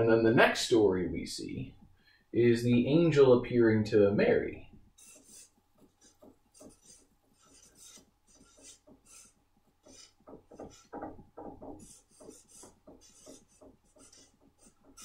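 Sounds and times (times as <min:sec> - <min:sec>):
marker pen writing on board: 0:05.0 - 0:15.0.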